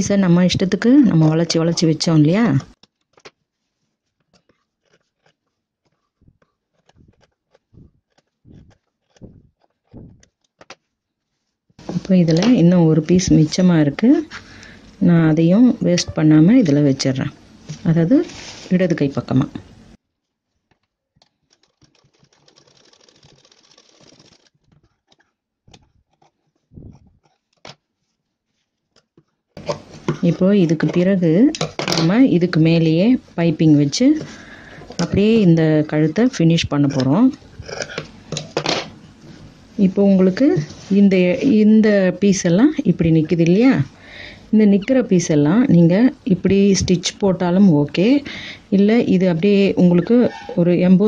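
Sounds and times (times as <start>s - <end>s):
fabric rustling: 3.0s - 12.2s, 17.6s - 18.8s, 20.2s - 30.9s, 39.1s - 41.6s
scissors snipping fabric: 4.2s - 10.8s, 24.7s - 27.6s
sewing machine stitching: 21.2s - 27.5s.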